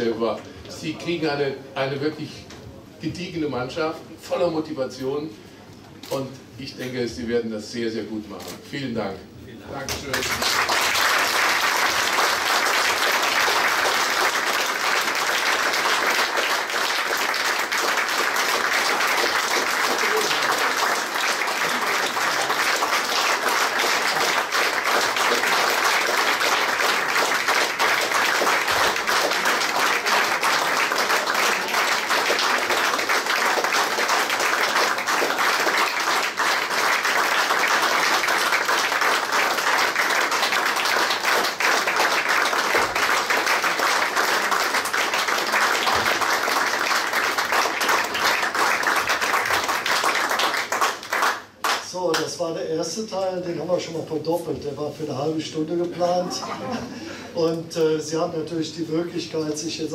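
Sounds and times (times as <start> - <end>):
people applauding: 9.8 - 52.3.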